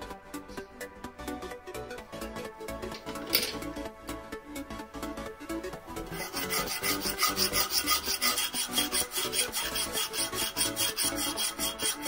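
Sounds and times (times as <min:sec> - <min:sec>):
hand file scraping steel: 0:06.0 - 0:12.0.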